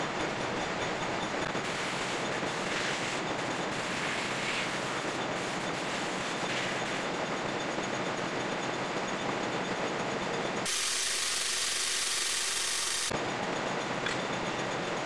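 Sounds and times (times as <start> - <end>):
metal lathe running: 10.6 - 13.2.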